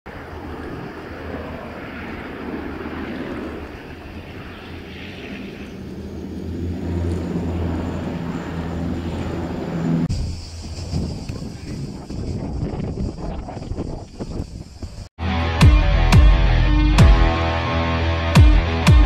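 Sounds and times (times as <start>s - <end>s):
turboprop engines droning: 0.1s - 15.1s.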